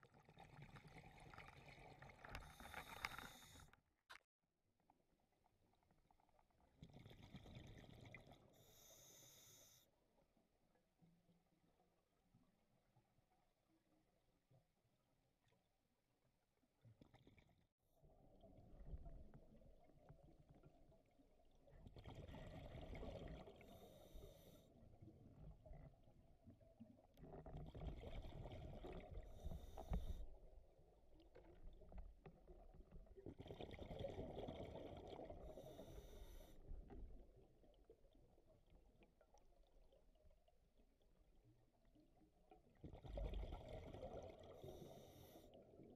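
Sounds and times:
exhaled bubbles underwater: 0.0s - 3.6s, 6.4s - 8.9s, 16.8s - 45.9s.

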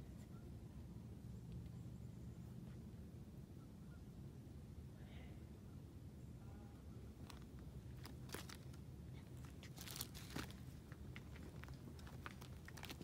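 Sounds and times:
dry leaves crackling: 7.2s - 8.8s, 9.4s - 13.0s.

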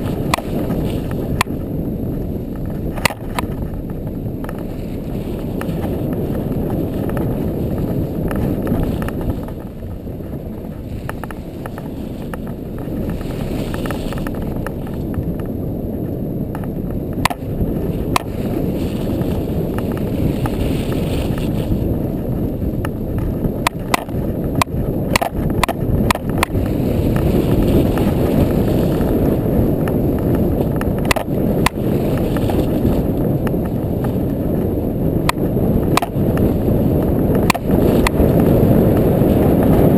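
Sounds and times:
atv engine and tyres rumbling: 0.0s - 39.9s
sharp knocks and clicks: 2.5s - 4.7s, 16.5s - 17.4s, 22.8s - 26.7s, 35.2s - 36.4s.

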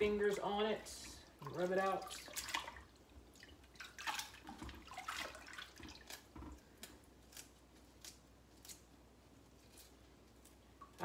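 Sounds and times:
water splashing and dripping: 0.0s - 6.2s.

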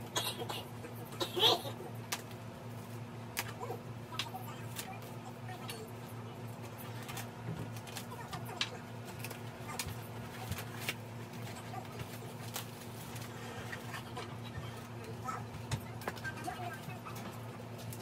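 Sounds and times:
steady low hum: 0.0s - 18.0s
plastic wrap crinkling: 6.6s - 18.0s.

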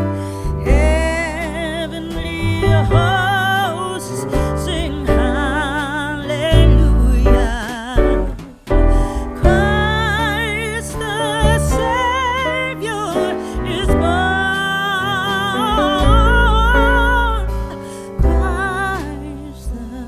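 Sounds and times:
person singing with vibrato: 0.0s - 20.0s.

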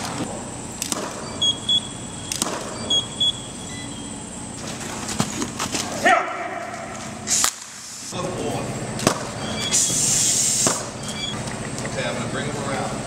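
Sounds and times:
hum of large hall: 0.0s - 13.0s
camera autofocus double beeps: 9.4s - 11.4s.

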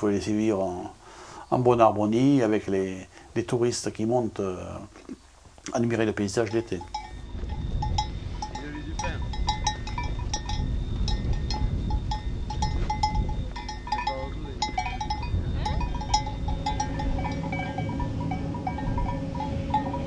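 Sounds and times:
livestock bells clinking: 5.8s - 20.0s
wind rumble on microphone: 6.5s - 20.0s.

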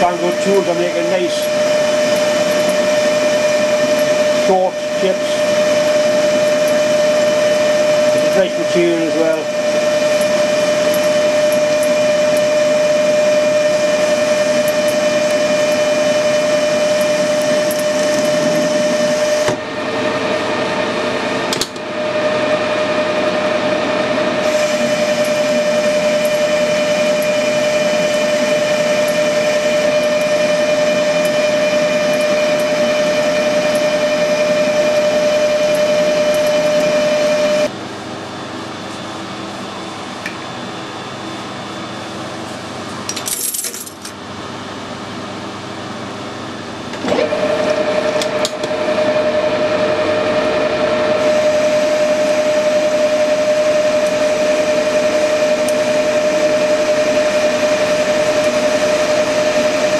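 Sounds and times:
lathe cutting metal: 0.0s - 37.7s, 47.1s - 59.9s
metal lathe gear whine: 0.0s - 37.8s, 44.1s - 59.9s.

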